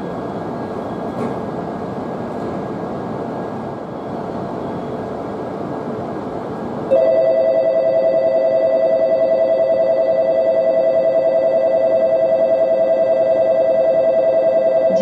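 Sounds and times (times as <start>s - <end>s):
two-tone departure bell ringing: 6.9s - 15.0s.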